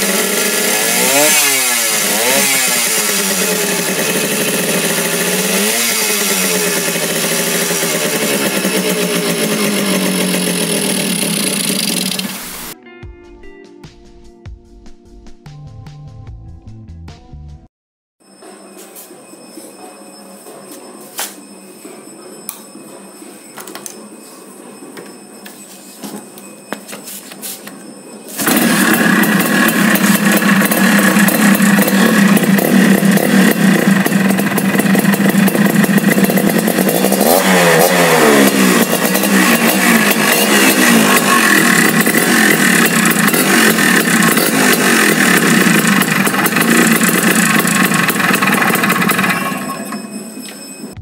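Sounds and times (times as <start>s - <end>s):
two-stroke engine starting and running: 0.0s - 12.8s, 27.8s - 51.0s
fast irregular rattle: 39.6s - 49.5s.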